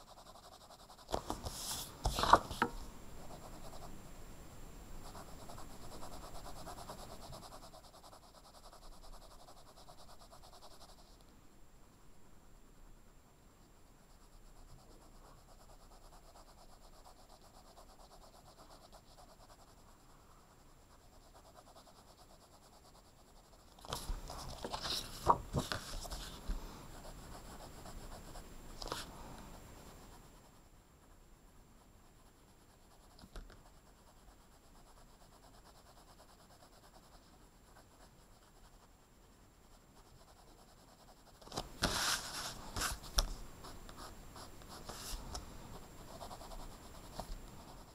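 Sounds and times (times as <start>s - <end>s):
pencil scratching on paper: 0.0s - 3.9s, 5.0s - 11.2s, 13.6s - 29.1s, 29.8s - 31.2s, 31.8s - 47.9s
paper rustling: 1.1s - 2.7s, 23.8s - 26.4s.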